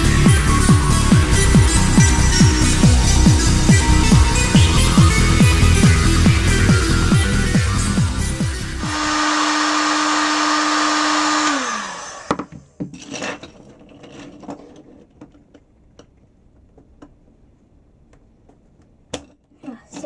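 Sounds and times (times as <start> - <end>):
fan winding down: 0.0 - 12.5
heat gun whining: 8.8 - 12.6
knock of tool set down: 12.3 - 13.0.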